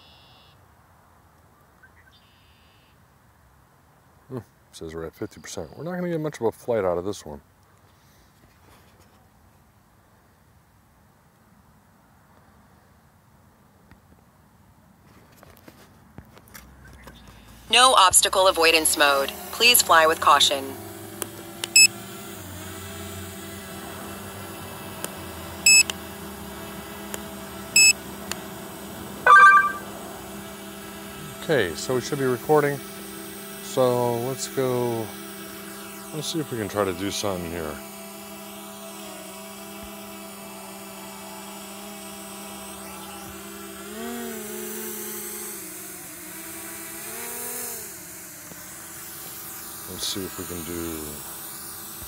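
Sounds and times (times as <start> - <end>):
drone propellers whining: 17.3 - 21.9, 42.6 - 43.7
high electronic beeps: 29.3 - 29.9.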